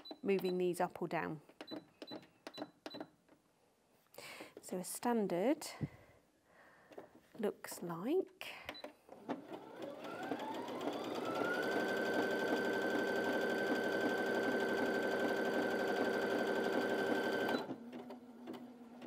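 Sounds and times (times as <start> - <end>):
sewing machine motor whine: 9.3 - 19.0.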